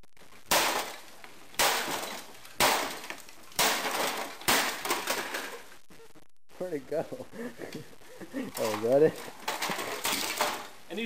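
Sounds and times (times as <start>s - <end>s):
breaking plastic clatter: 0.5s - 5.7s, 8.5s - 10.8s.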